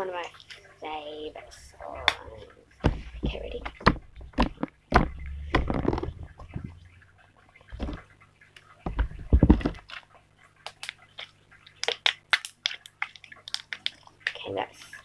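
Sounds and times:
slime squelching: 0:01.3 - 0:15.0
dull thumps: 0:02.8 - 0:07.0, 0:07.7 - 0:08.1, 0:08.8 - 0:09.8.

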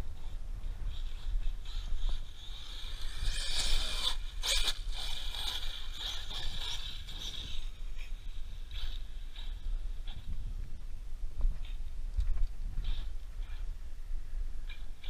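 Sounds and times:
wind rumble on microphone: 0:00.0 - 0:15.0
gravel scraping under tyres: 0:00.2 - 0:09.6
electric motor whining: 0:00.2 - 0:09.7.

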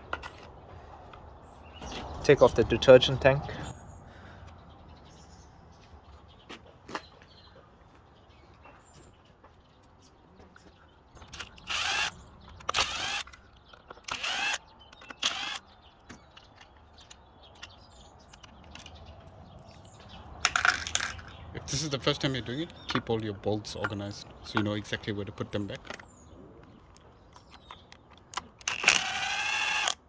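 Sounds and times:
power driver whining: 0:11.3 - 0:15.6, 0:28.6 - 0:30.0
clicks of parts handled: 0:16.0 - 0:19.8.

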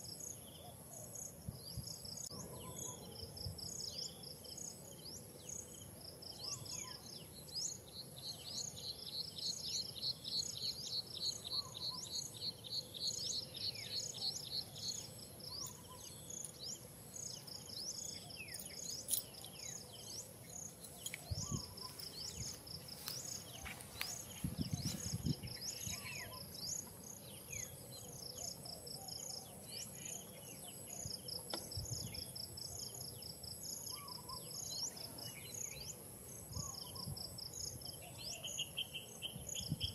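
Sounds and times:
high insect drone: 0:03.1 - 0:39.7
birds chirping and calling: 0:06.4 - 0:33.1, 0:33.7 - 0:35.9.

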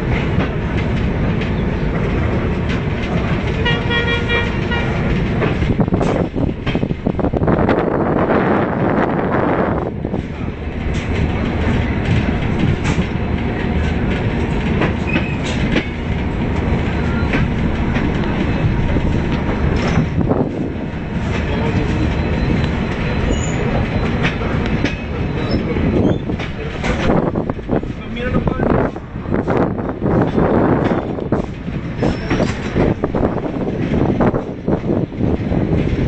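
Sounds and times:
train wheels rumbling on rail: 0:00.0 - 0:36.0
wheels clickety-clack over rail joints: 0:00.0 - 0:36.0
high wheel squeals: 0:22.1 - 0:24.2, 0:24.8 - 0:26.4.

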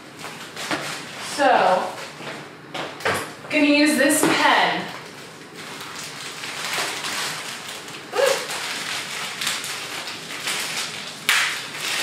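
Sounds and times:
plastic bag tearing and crinkling: 0:05.0 - 0:12.0.

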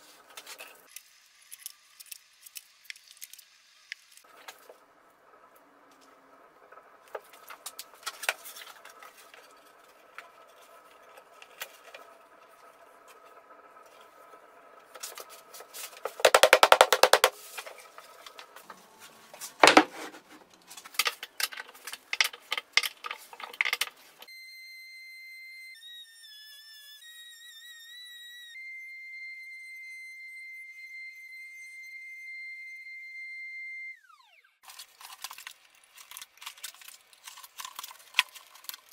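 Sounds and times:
plywood pieces clicking and knocking: 0:16.0 - 0:17.3, 0:19.6 - 0:24.3
music with whistle-like tones: 0:24.3 - 0:34.5.

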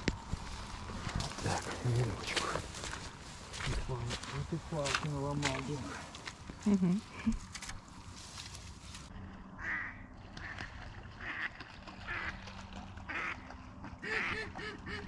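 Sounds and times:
duck quacking: 0:09.6 - 0:10.5, 0:11.2 - 0:12.4, 0:13.1 - 0:15.0.

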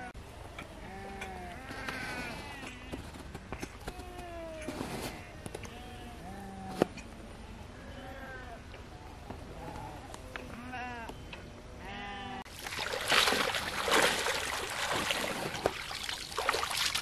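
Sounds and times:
water splashing and sloshing: 0:12.5 - 0:17.0.

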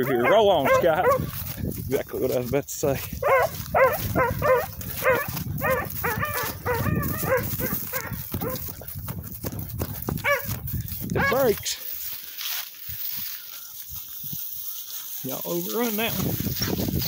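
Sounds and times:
hounds baying: 0:00.0 - 0:01.4, 0:03.1 - 0:08.9, 0:10.2 - 0:11.6.

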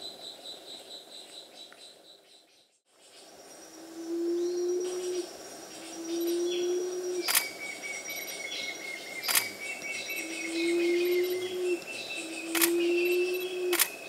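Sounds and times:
sharp clicks: 0:07.3 - 0:07.5, 0:09.3 - 0:09.5, 0:12.5 - 0:12.8, 0:13.7 - 0:14.0.

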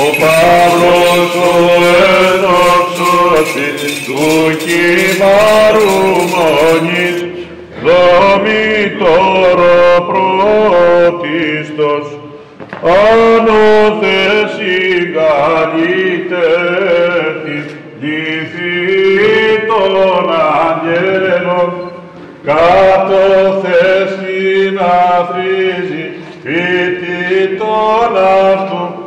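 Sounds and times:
men singing chant: 0:00.0 - 0:12.2, 0:12.8 - 0:29.0.

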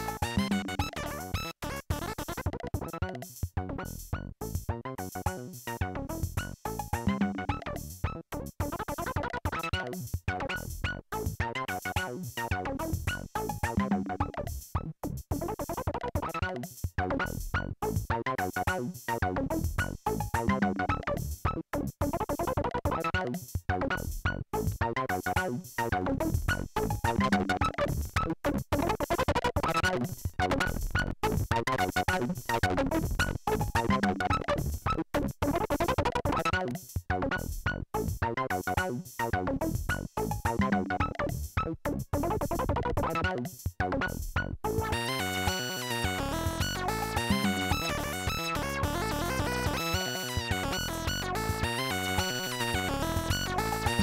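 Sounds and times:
drum machine beats: 0:00.0 - 0:54.0
analog synthesizer notes: 0:26.3 - 0:38.6, 0:39.3 - 0:54.0
analog synthesizer short notes: 0:44.0 - 0:54.0.

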